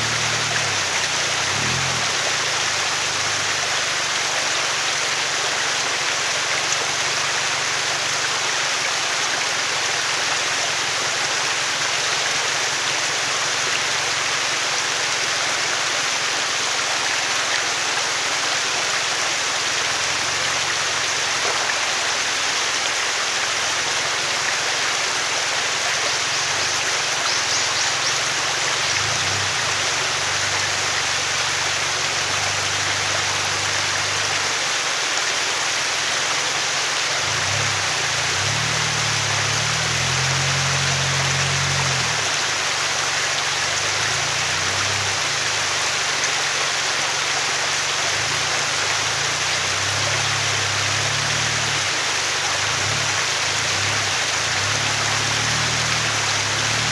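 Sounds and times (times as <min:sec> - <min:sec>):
truck engine hum: 0:00.0 - 0:04.4, 0:27.8 - 0:34.4, 0:37.2 - 0:56.9
stream rushing over rocks: 0:00.0 - 0:56.9.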